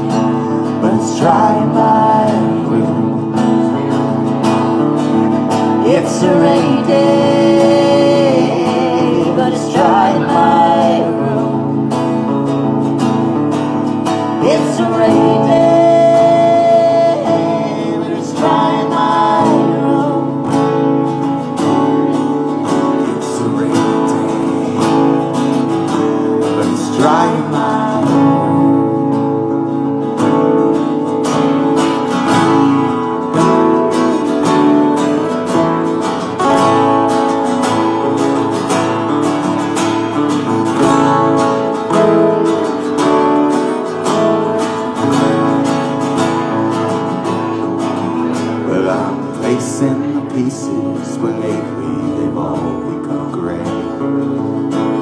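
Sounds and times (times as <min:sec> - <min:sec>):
acoustic guitars strumming: 0:00.0 - 0:55.0.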